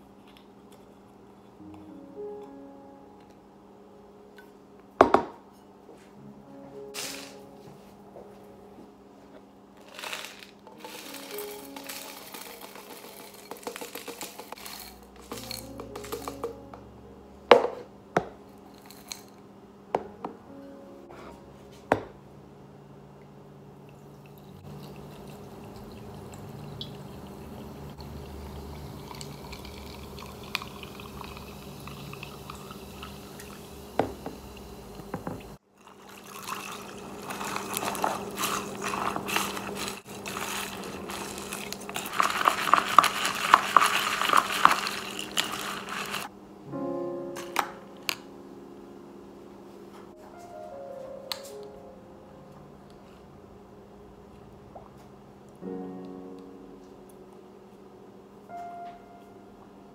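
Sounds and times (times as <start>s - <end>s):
sparkling water pouring: 6.9s - 7.5s, 9.8s - 16.6s, 23.9s - 46.3s
spoon stirring ice in glass: 9.8s - 16.6s, 18.7s - 19.3s, 29.0s - 32.8s, 35.8s - 46.3s
ice clinking against glass: 9.9s - 16.6s, 18.8s - 19.3s, 35.8s - 46.3s.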